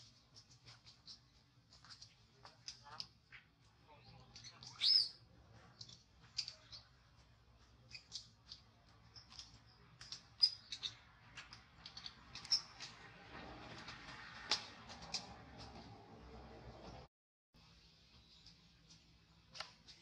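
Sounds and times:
baby monkey squeaking: 4.3 - 5.3.

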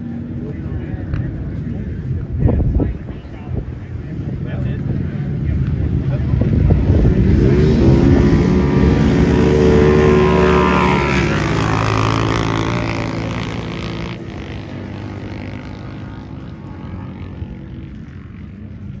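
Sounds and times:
off-road vehicle engines racing past: 0.0 - 19.0.

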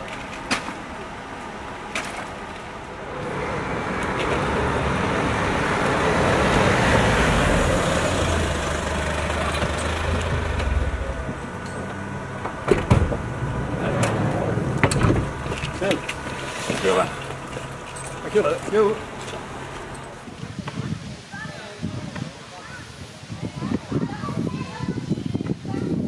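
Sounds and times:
van engine driving past: 2.7 - 20.3.

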